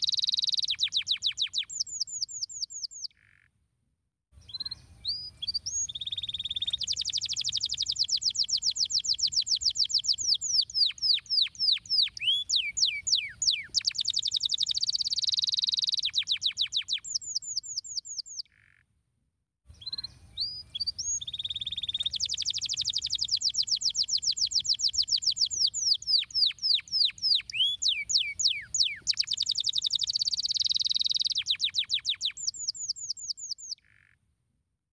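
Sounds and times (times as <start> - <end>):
canary singing trills: 0.0 - 3.5, 4.4 - 18.8, 19.7 - 34.2.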